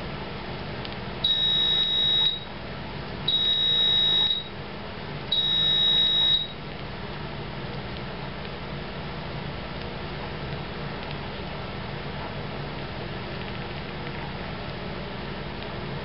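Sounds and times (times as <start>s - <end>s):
high-pitched electronic beeps: 1.3s - 2.4s, 3.3s - 4.5s, 5.4s - 6.6s.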